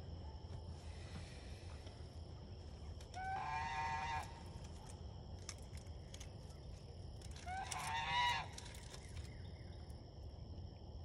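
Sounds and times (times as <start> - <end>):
goose honking: 3.2 - 4.4, 7.5 - 8.5.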